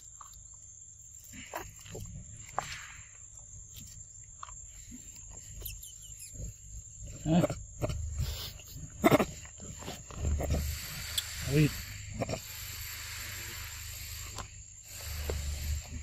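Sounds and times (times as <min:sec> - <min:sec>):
low monkey calls: 0:05.4 - 0:12.6.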